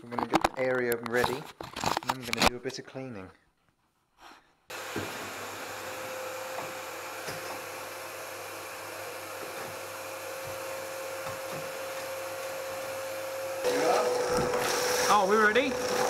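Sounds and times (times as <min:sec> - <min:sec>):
vacuum cleaner whine: 0:04.7 - 0:16.0
hose sucking debris: 0:13.6 - 0:16.0.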